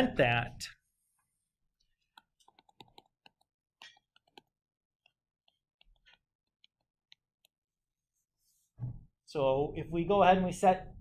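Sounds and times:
stylus tapping on touchscreen: 2.1 - 7.6.

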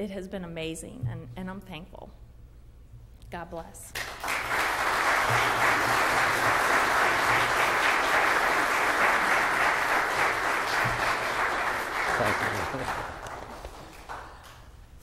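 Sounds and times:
congregation applauding: 3.9 - 14.8.

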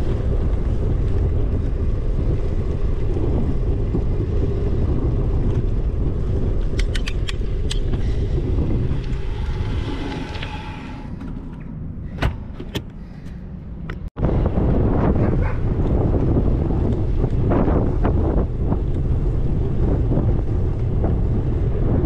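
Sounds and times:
wind buffeting microphone: 0.0 - 22.0
sharp clicks: 6.6 - 7.9.

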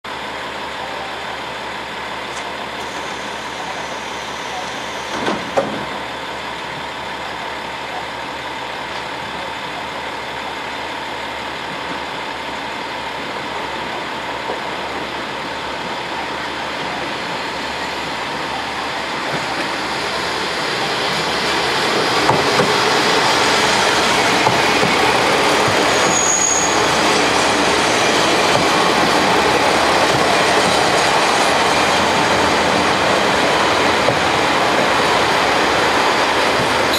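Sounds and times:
diesel train engines running: 0.1 - 36.9
high squeal: 22.9 - 28.9.

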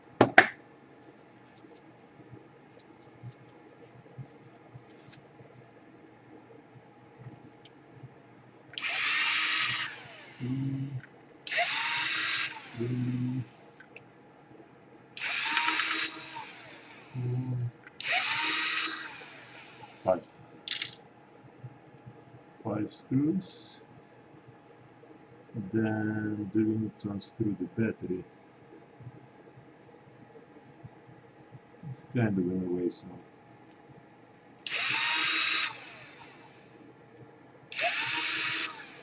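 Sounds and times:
electric screwdriver whirring: 8.8 - 10.5, 11.5 - 13.4, 15.2 - 17.2, 18.0 - 20.1, 34.7 - 36.6, 37.7 - 39.0.

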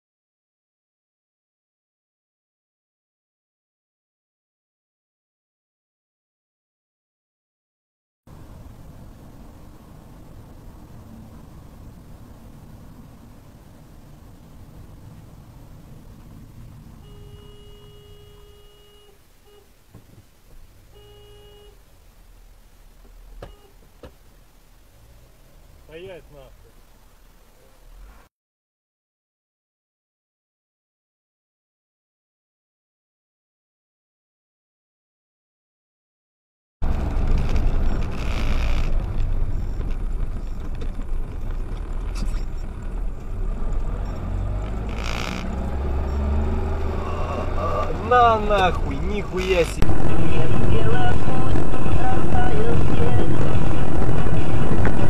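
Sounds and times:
low road rumble: 8.3 - 28.3, 36.8 - 55.0
car horn honking: 17.0 - 19.9, 20.9 - 21.8, 23.4 - 23.8.

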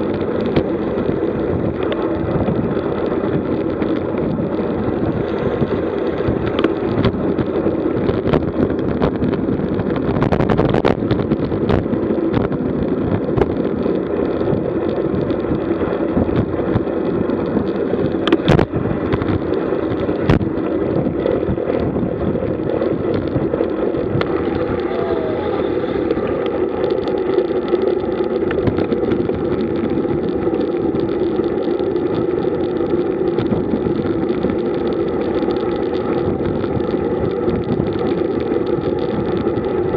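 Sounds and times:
road noise: 0.0 - 39.9
wind rushing over microphone: 0.0 - 39.9
clicks and knocks from bumps: 1.6 - 25.0.

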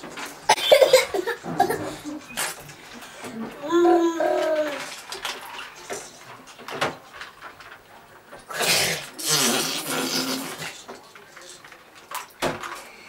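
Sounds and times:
toddler babbling: 3.5 - 4.9.

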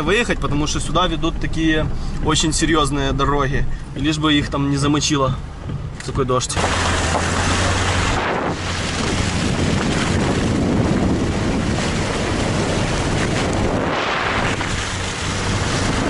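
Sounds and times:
car humming on dirt track: 0.0 - 16.0
wind buffeting microphone: 6.6 - 16.0.

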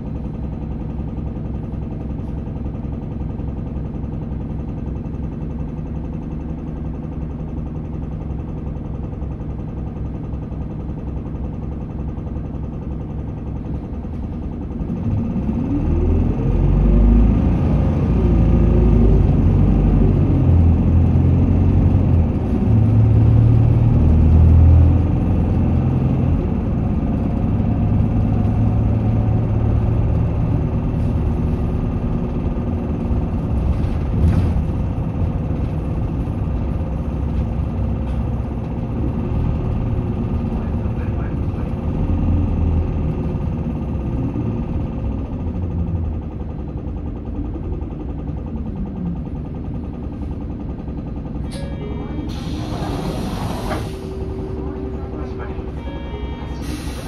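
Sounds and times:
bus diesel engine revving: 13.8 - 57.0
road noise: 51.5 - 57.0.

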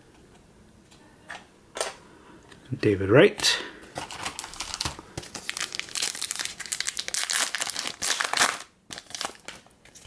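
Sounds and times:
foil wrapper crinkling and tearing: 4.0 - 10.0.

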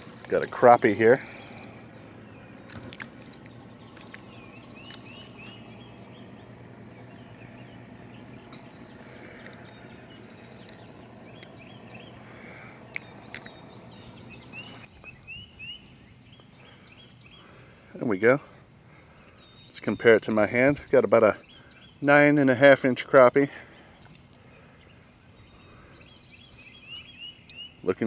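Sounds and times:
bird chirping: 0.0 - 28.0
steady low hum: 0.0 - 28.0
sharp clicks: 2.6 - 5.7, 12.9 - 13.6.

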